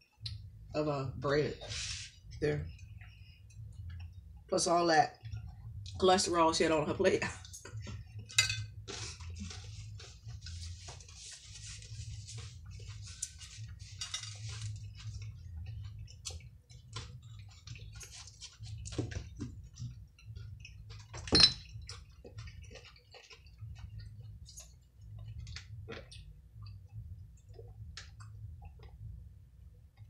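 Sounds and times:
steady low hum: 0:00.0 - 0:30.0
cutlery clinking on plates: 0:08.3 - 0:08.7, 0:14.0 - 0:14.5, 0:21.1 - 0:21.8
chewing: 0:11.8 - 0:29.1.

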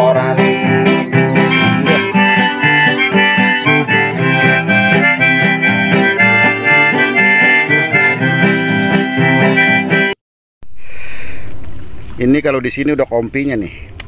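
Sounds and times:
instrumental music with steady beat: 0:00.0 - 0:10.2.

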